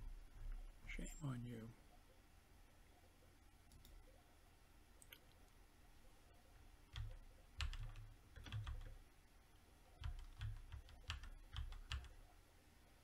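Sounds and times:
typing on computer keyboard: 6.9 - 9.0, 10.0 - 12.2.

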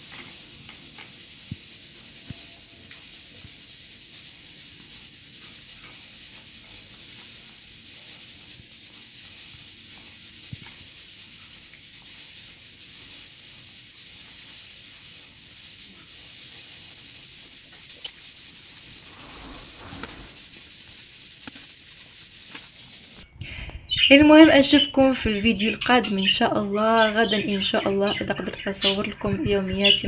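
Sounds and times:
steady hiss: 0.0 - 23.2.

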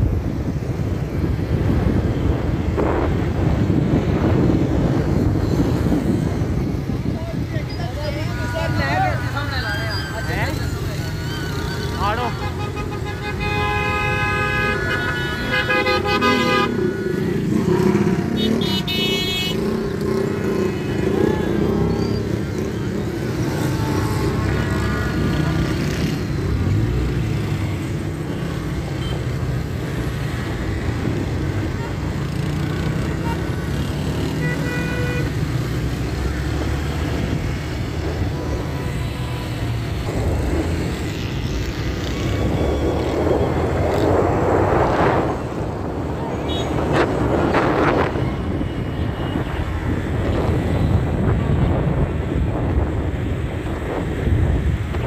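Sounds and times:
wind on microphone: 0.0 - 9.0, 35.2 - 55.0
car and motorcycle engines rumbling: 0.0 - 55.0
car horns blaring: 8.2 - 22.0, 34.2 - 35.4, 46.4 - 48.1.

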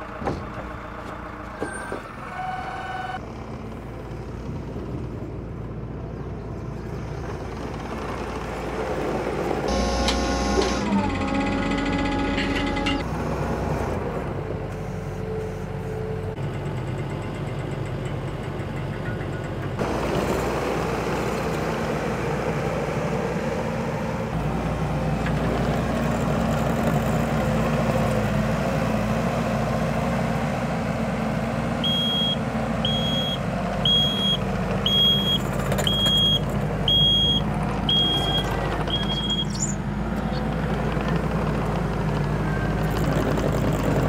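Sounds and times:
engine running steadily: 3.0 - 44.0
reversing alarm beeps: 9.7 - 10.8, 31.8 - 39.8.

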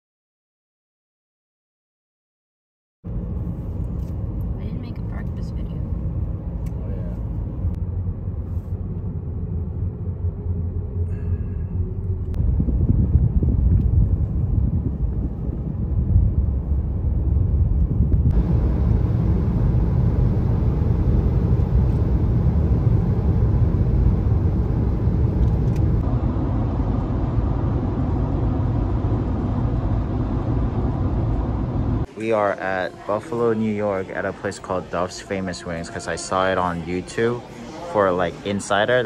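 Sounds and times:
car road and engine rumble: 3.1 - 32.2.

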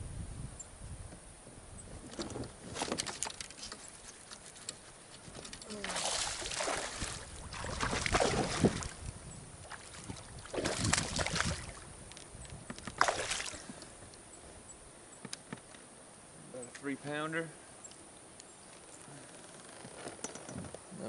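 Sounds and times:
fish thrashing and splashing: 5.6 - 9.0, 9.6 - 11.8, 12.9 - 13.7.

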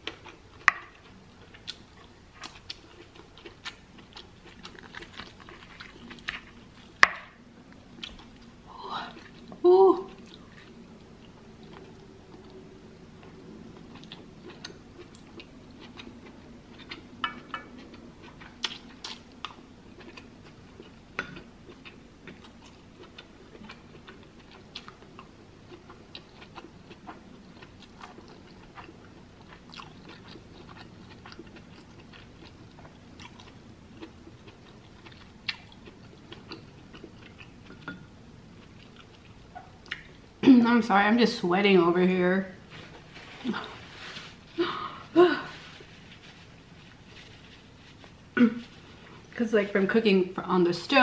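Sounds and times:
person chewing food: 0.0 - 40.3.

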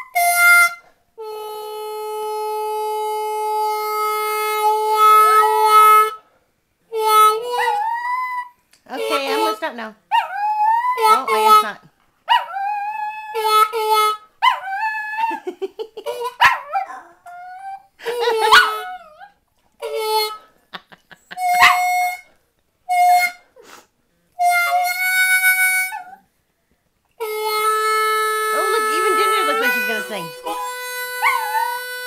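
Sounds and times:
blues harmonica playing: 0.0 - 11.9, 12.5 - 16.4, 17.4 - 26.2, 27.2 - 32.0
dog howling and yipping: 7.5 - 8.5, 10.1 - 11.6, 12.3 - 13.7, 14.4 - 15.5, 16.2 - 19.4, 21.5 - 22.1, 31.1 - 31.9.

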